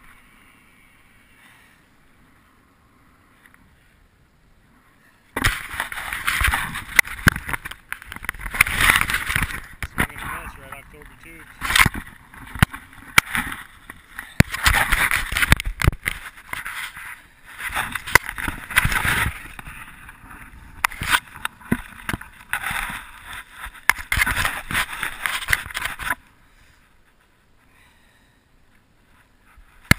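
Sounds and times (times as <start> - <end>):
faint hiss: 0.0 - 5.4.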